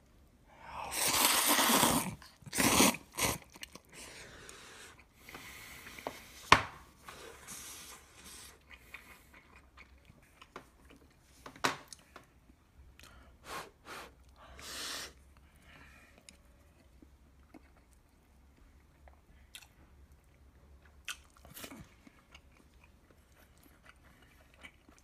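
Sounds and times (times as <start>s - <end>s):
soft chewing: 3.4s - 6.4s, 7.1s - 13.3s, 15.2s - 25.0s.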